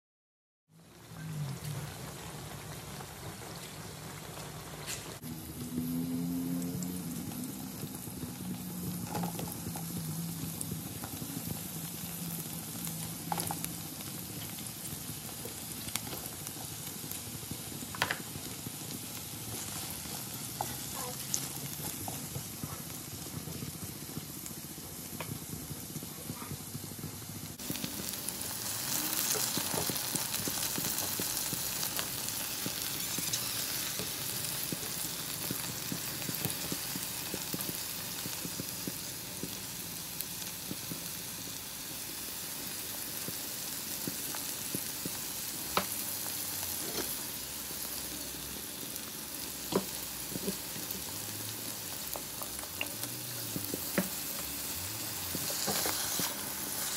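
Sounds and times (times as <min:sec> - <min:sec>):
food sizzling in oil: 0:01.0 - 0:56.9.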